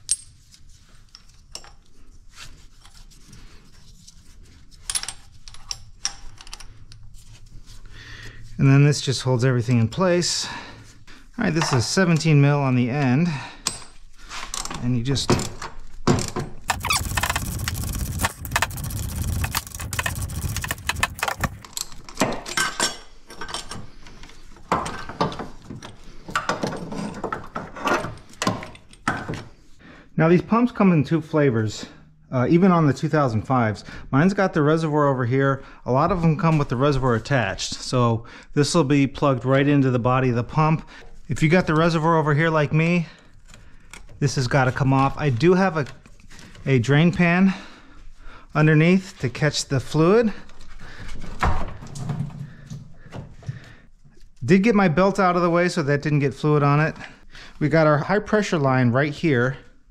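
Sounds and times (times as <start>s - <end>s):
metal clicks and scraping: 16.7s - 22.2s.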